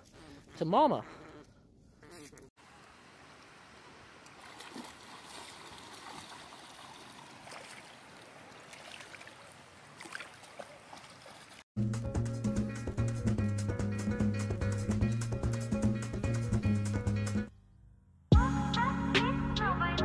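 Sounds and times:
shallow seawater washing: 0:03.2 - 0:11.7
splashes of wading legs: 0:04.2 - 0:11.6.

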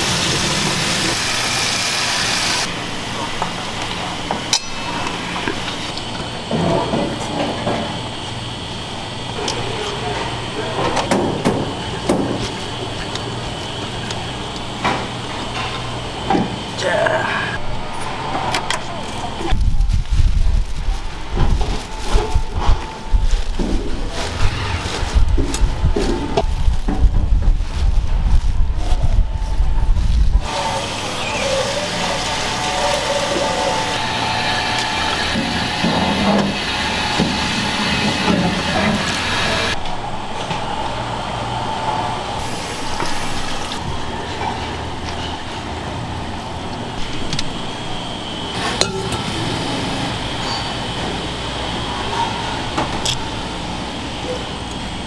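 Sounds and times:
metal bowls clinking: 0:48.6 - 0:49.8.

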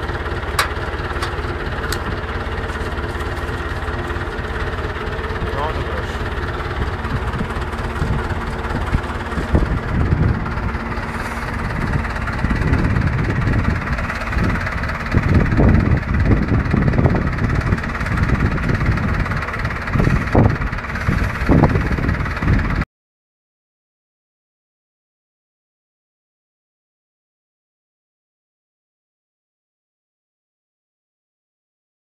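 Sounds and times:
tractor engine running: 0:00.0 - 0:22.8.

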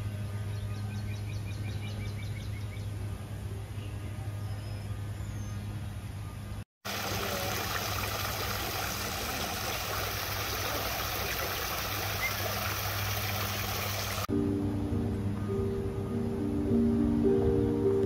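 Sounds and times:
fountain splashing into pool: 0:06.8 - 0:14.3.

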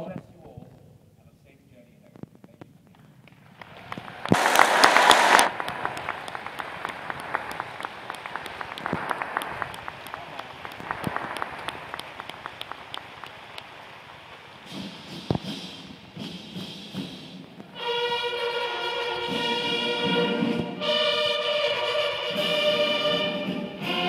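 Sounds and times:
large audience applauding: 0:03.5 - 0:14.7.

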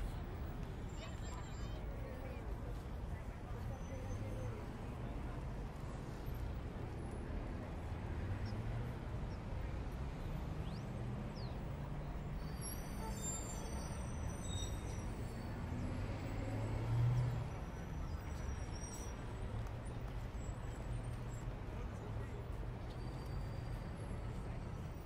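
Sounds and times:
faint high squeaks: 0:12.4 - 0:15.6, 0:16.4 - 0:19.4.

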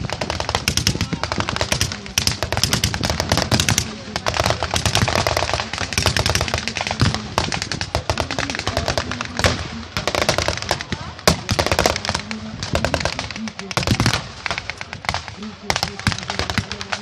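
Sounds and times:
crowd voices: 0:00.0 - 0:17.0
rifle shots: 0:00.0 - 0:17.0
machine-gun bursts: 0:00.1 - 0:10.8.

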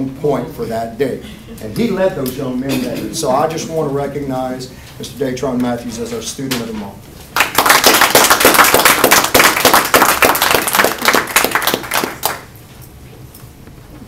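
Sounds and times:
roomful of people applauding: 0:07.3 - 0:12.6.

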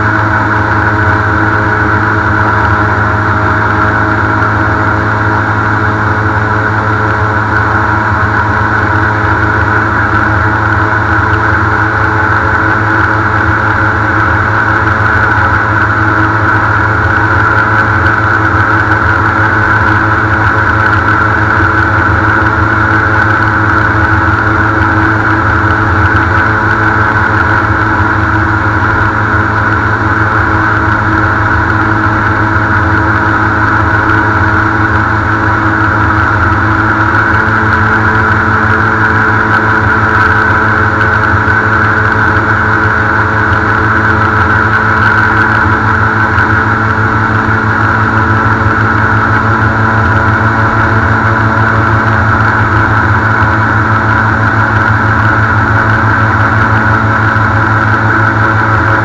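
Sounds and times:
airboat engine and propeller: 0:00.0 - 0:59.0.

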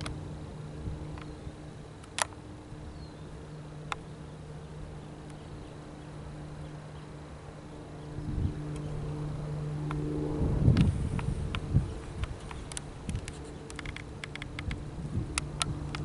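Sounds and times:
distant jet engines droning: 0:00.0 - 0:16.0
sharp clicks: 0:02.0 - 0:02.4, 0:10.7 - 0:16.0.

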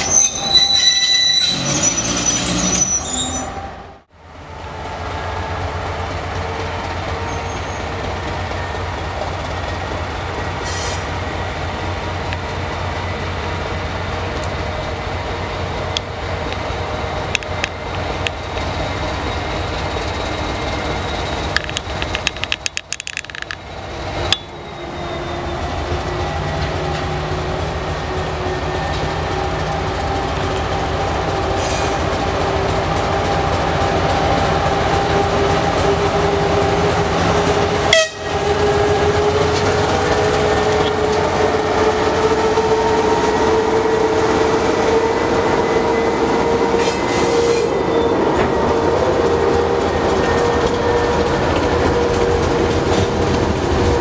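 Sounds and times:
wagons rolling on rails: 0:20.8 - 0:23.7.

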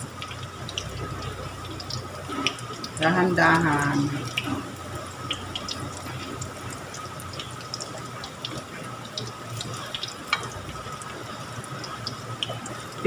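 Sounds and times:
fritters sizzling in oil: 0:00.0 - 0:13.0.

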